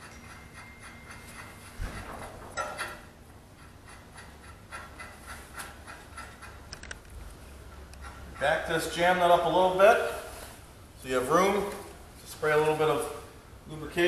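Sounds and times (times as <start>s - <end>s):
light metal clicks and rubbing: 0.0s - 9.0s.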